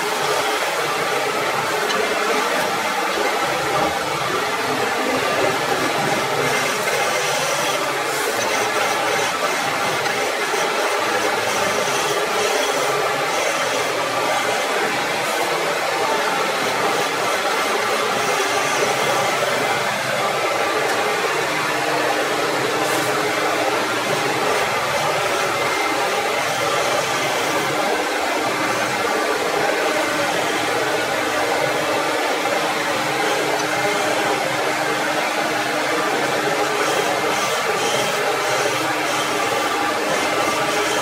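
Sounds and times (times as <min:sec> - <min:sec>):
dust extractor running: 0:00.0 - 0:41.0
wood turning on a lathe: 0:00.0 - 0:41.0.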